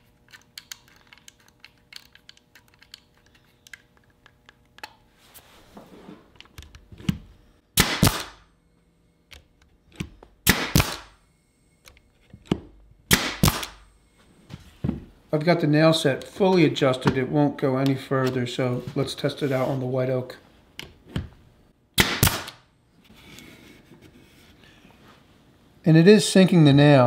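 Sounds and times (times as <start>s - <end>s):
nail gun firing: 7.8s - 8.4s, 10.4s - 11.2s, 13.1s - 13.8s, 22.0s - 22.6s.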